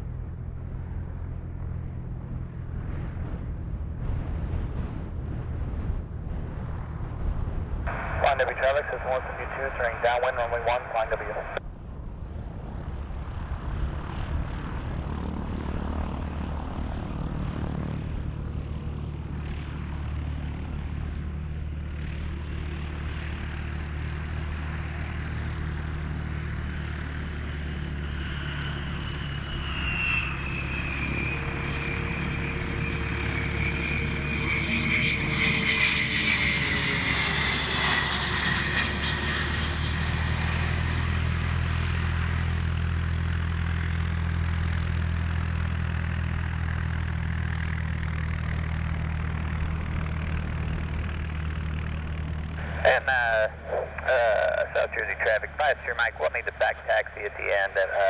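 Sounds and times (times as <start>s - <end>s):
low engine hum: 0.0s - 58.0s
jet engines whining: 0.2s - 11.6s, 21.9s - 44.1s, 46.8s - 58.0s.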